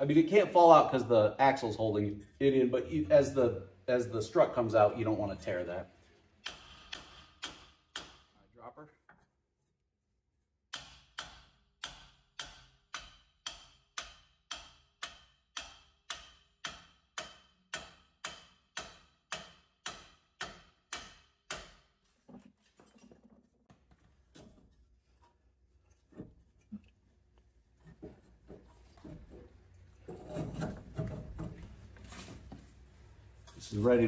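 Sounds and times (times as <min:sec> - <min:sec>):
hammer striking metal: 0:06.4 - 0:08.3, 0:10.7 - 0:21.9.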